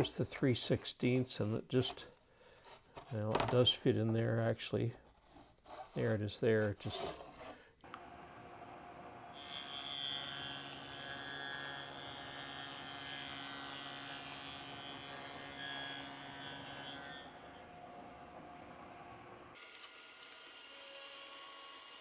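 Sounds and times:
table saw cutting: 9.3 - 17.7, 19.6 - 22.0.

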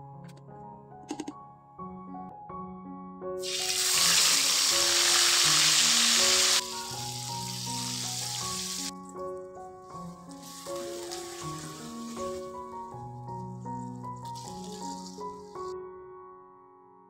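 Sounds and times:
spice paste sizzling in oil: 3.4 - 9.0, 9.9 - 15.7.

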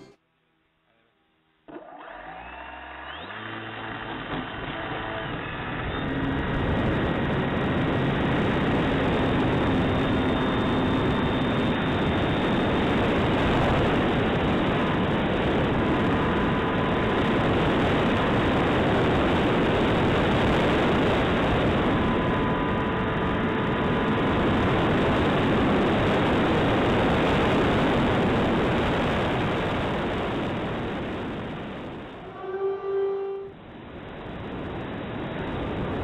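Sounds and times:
model airplane motor and propeller: 1.7 - 28.2.

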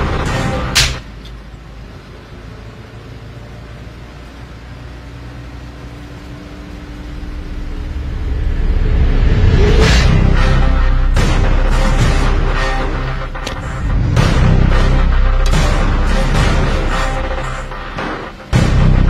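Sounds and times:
sharp hit: 0.0 - 1.2
bus engine rumble: 0.0 - 19.0.

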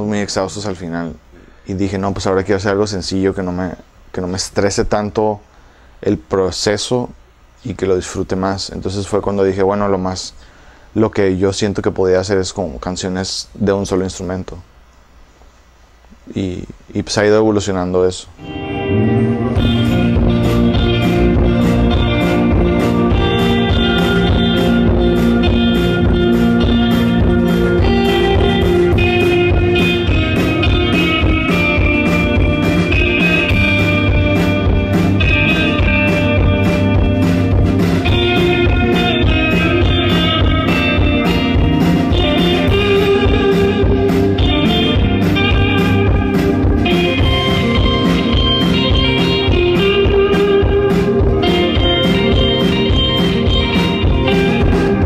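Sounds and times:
band playing music: 18.4 - 55.0
guitar: 18.4 - 55.0
steady drum beat: 19.5 - 55.0.

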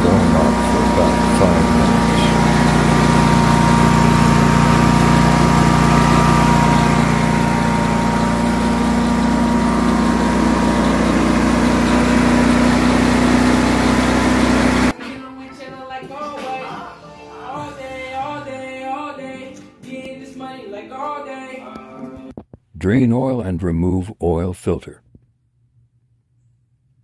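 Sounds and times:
mower engine idling: 0.0 - 14.9
thin steady whine: 0.0 - 14.9.

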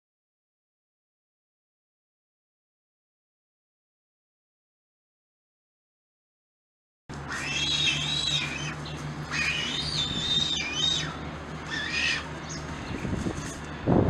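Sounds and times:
vulture high-pitched wavering calls: 7.2 - 13.6.

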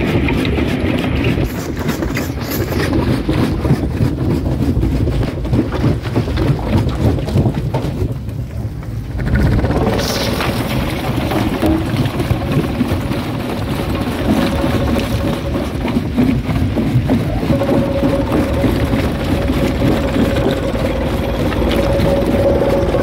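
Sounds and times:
steady mechanical whine: 8.6 - 23.0
rock crusher drone: 8.8 - 23.0.

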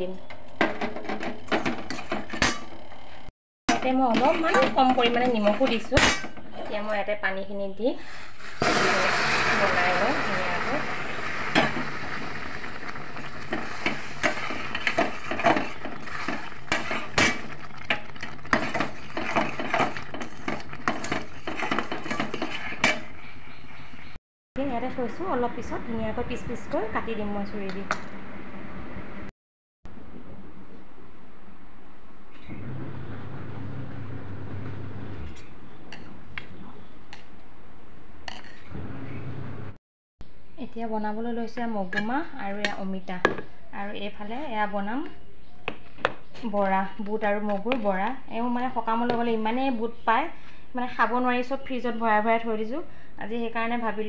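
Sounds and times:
spoon scraping metal pan: 13.5 - 23.8.

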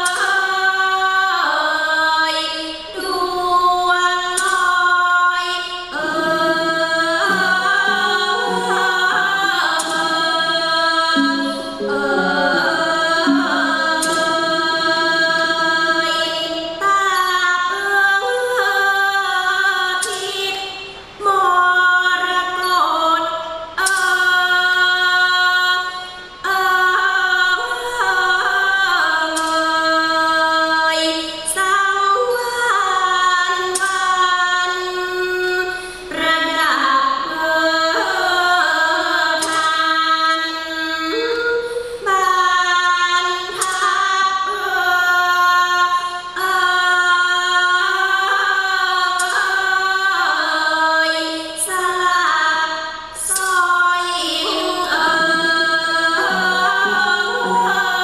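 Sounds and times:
woman singing: 0.0 - 58.0
sharp percussion strokes: 5.9 - 16.7.

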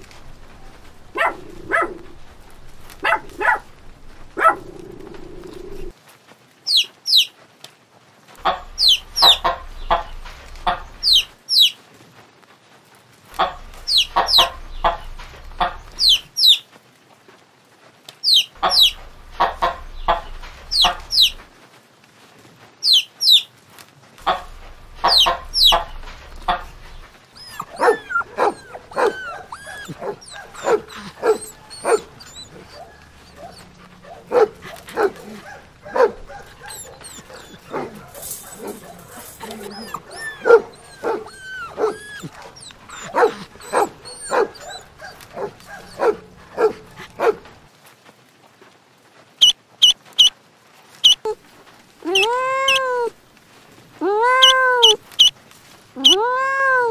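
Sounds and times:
dogs barking: 0.0 - 5.9, 8.4 - 11.4, 13.4 - 16.3, 18.6 - 21.5, 24.2 - 47.7, 54.4 - 55.3
hens clucking: 0.0 - 5.9, 8.4 - 11.7, 13.3 - 16.3, 18.3 - 21.5, 24.2 - 47.7, 49.8 - 50.3, 52.0 - 53.1, 54.3 - 55.4
chicks peeping: 8.4 - 11.7, 13.4 - 16.6, 18.3 - 21.5, 24.2 - 47.6, 49.8 - 50.3, 52.1 - 52.9, 54.4 - 55.3.

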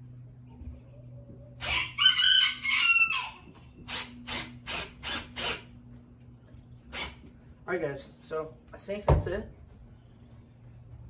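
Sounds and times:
rooster crowing: 1.6 - 3.6
screw rasping into wood: 3.9 - 5.6.

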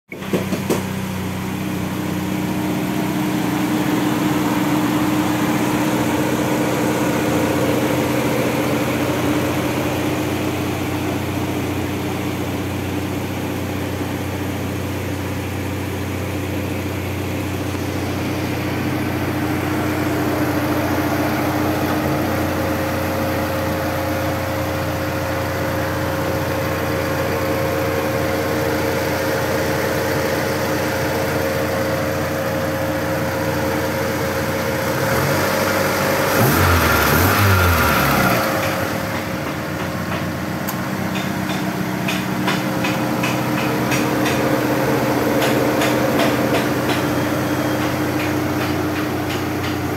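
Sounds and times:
car engine idling: 0.1 - 49.9.

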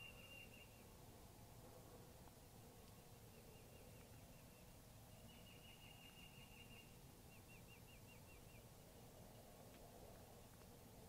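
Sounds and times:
small bird chirping: 2.8 - 8.8.

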